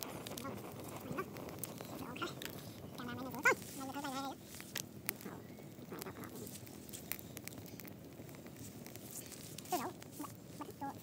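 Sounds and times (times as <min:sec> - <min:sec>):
wood fire crackling and popping: 0:00.0 - 0:11.0
pitched animal call: 0:03.0 - 0:04.4.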